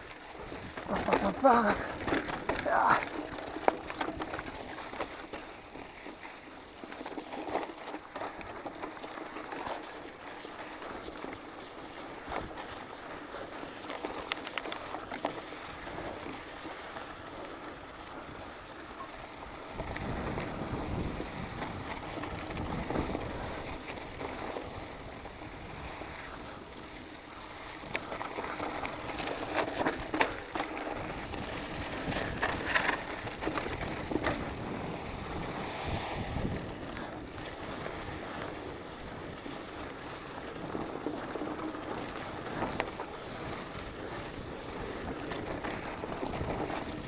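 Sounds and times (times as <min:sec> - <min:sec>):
bike rattling: 0:00.0 - 0:47.0
tyres running over loose dirt: 0:00.0 - 0:47.0
wind rushing over microphone: 0:19.4 - 0:27.2, 0:27.8 - 0:47.0.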